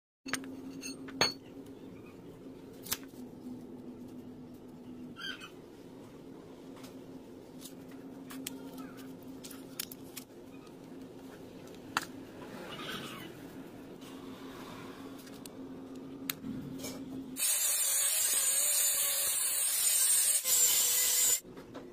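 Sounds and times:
steady low hum: 0.3s - 17.4s.

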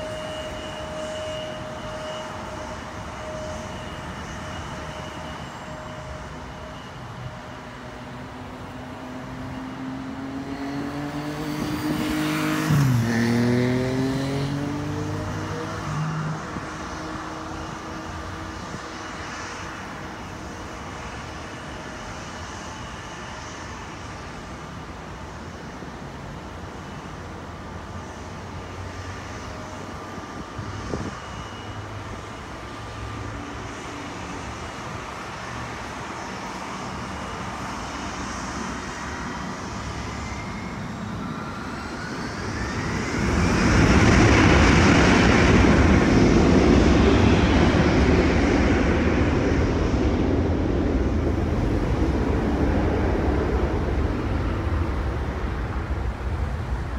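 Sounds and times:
highway traffic: 0.0s - 56.9s
jet engines whining and roaring: 0.0s - 56.9s.

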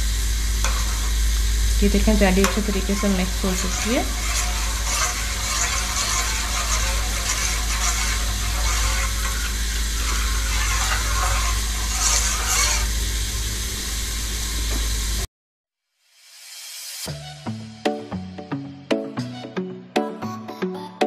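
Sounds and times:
low hum: 0.0s - 14.6s
steady hiss: 0.0s - 15.3s
metal spoon stirring liquid: 0.6s - 1.2s, 1.8s - 13.0s.

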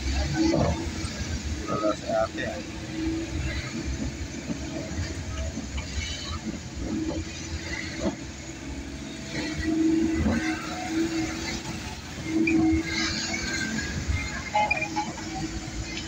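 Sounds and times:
car engine and road drone: 0.0s - 16.0s.

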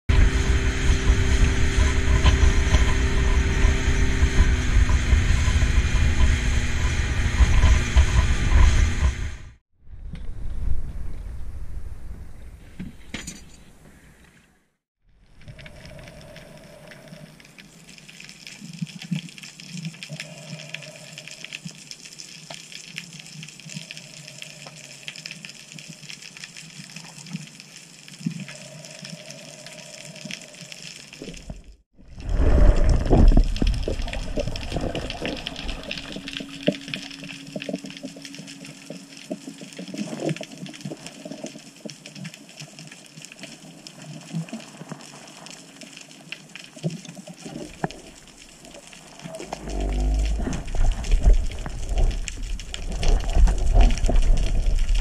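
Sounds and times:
underwater hiss with crackling: 15.4s - 31.5s, 32.2s - 55.0s.

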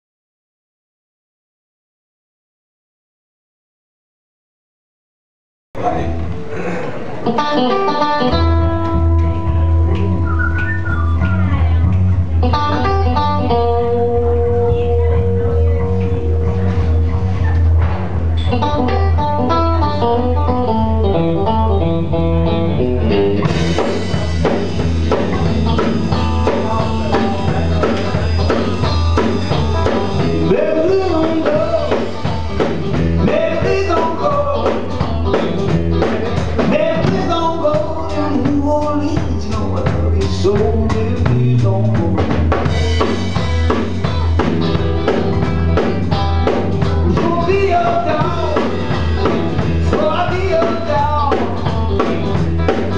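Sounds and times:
blues-rock band playing: 6.1s - 52.9s
man singing: 25.4s - 43.2s, 47.0s - 52.4s.

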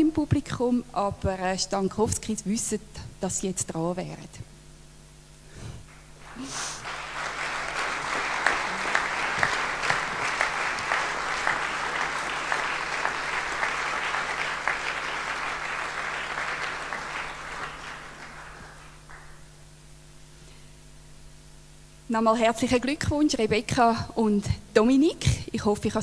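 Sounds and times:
audience applause: 6.2s - 19.5s.

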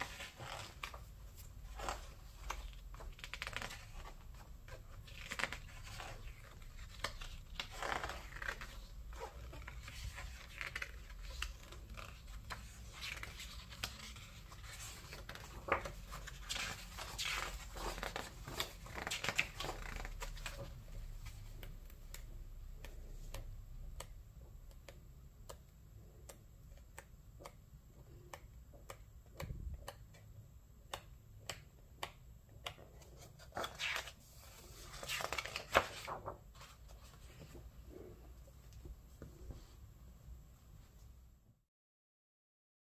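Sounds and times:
book pages rustling and sliding: 0.0s - 23.4s, 32.6s - 39.9s.

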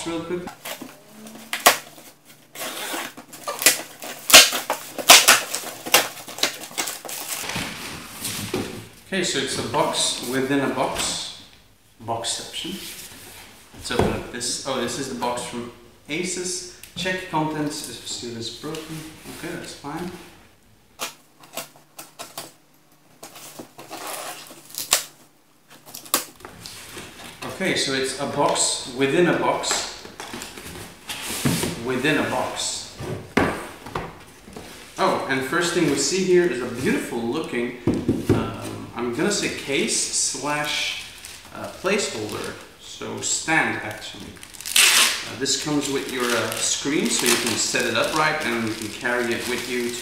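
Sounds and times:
box cutter slitting packing tape: 2.5s - 7.4s.

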